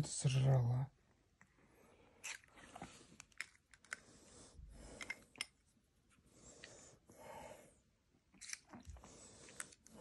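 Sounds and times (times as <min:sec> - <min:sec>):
faint breaths: 0:03.9 - 0:05.5, 0:06.1 - 0:08.0, 0:08.8 - 0:10.0.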